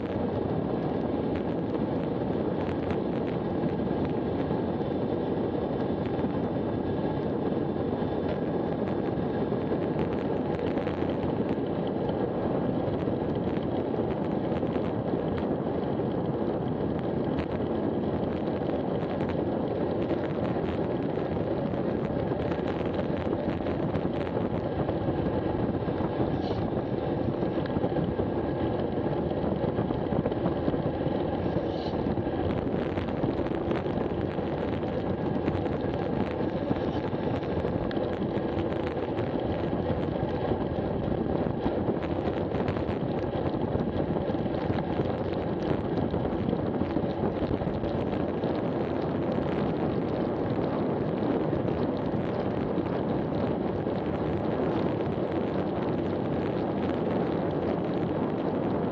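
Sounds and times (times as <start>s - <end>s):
wind buffeting microphone: 0.0s - 58.9s.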